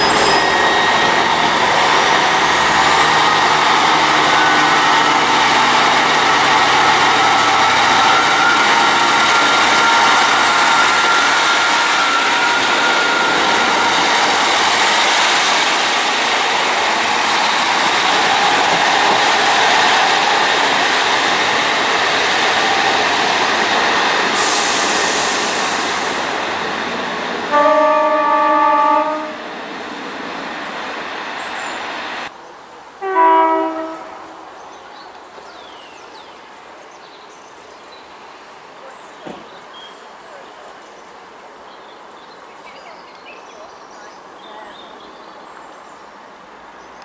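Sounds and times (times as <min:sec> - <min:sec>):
train wheels rushing on rails: 0:00.0 - 0:32.3
train horn: 0:04.0 - 0:14.1, 0:27.5 - 0:29.5, 0:33.0 - 0:34.6.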